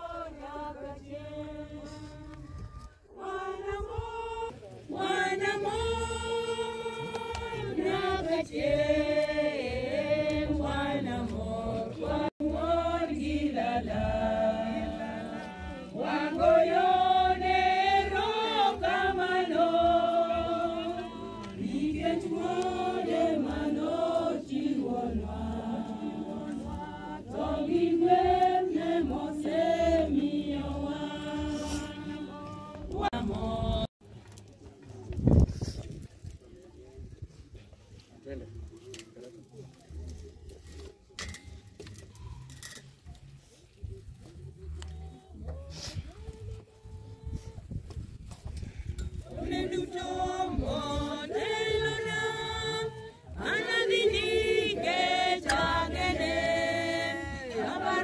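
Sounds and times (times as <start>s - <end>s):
group singing a hymn: 0.0s - 34.0s, 48.4s - 58.0s.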